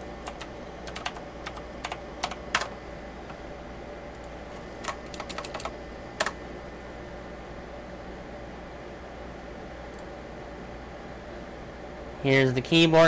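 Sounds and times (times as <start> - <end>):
clicky keyboard key presses: 0.3 - 2.7, 4.2 - 6.4.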